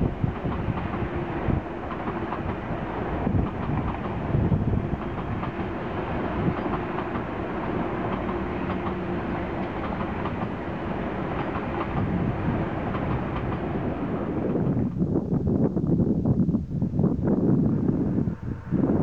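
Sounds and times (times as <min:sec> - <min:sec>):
train wheels clattering over rails: 0:00.0 - 0:14.8
steady rushing noise: 0:00.0 - 0:19.0.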